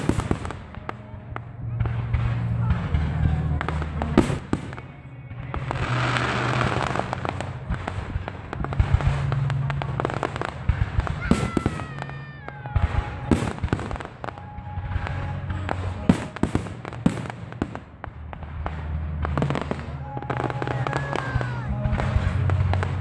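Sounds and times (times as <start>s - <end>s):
fireworks bangs and crackling: 0.0s - 23.0s
firework falling whistle: 5.6s - 17.4s.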